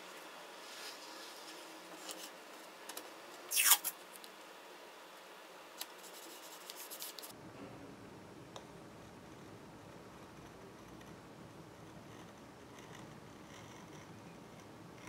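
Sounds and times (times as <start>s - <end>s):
tape ripping: 3.5s - 4.0s.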